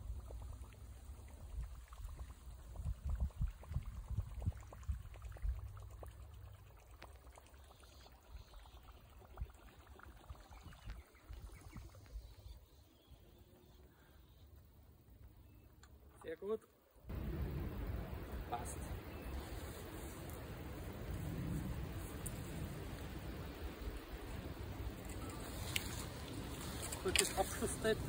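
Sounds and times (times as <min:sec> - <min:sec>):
lure gurgling and splashing: 0:00.0 - 0:11.9
low rumble: 0:17.1 - 0:19.6.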